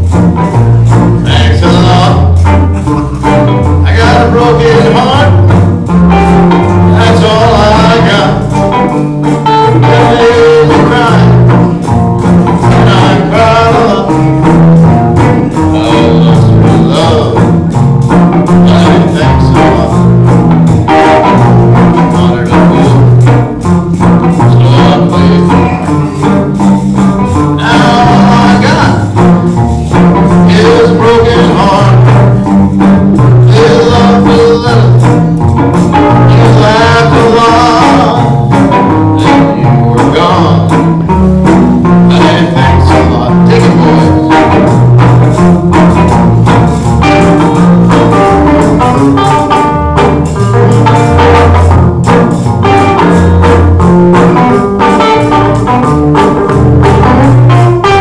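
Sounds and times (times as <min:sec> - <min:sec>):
electric bass: 0:00.0 - 0:58.0
guitar: 0:00.0 - 0:58.0
washboard scraping rhythm: 0:00.0 - 0:58.0
man singing: 0:01.2 - 0:05.6, 0:06.4 - 0:08.7, 0:09.5 - 0:11.9, 0:12.6 - 0:14.7, 0:15.3 - 0:17.7, 0:18.4 - 0:20.2, 0:21.8 - 0:23.2, 0:24.3 - 0:26.2, 0:27.3 - 0:29.2, 0:30.3 - 0:32.5, 0:33.2 - 0:35.2, 0:36.0 - 0:41.0, 0:41.8 - 0:44.7.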